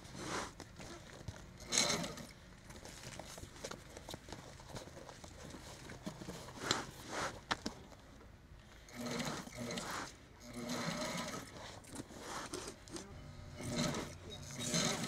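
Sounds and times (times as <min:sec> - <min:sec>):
sewing machine stitching: 0:01.6 - 0:02.3, 0:08.9 - 0:11.6, 0:12.5 - 0:15.0.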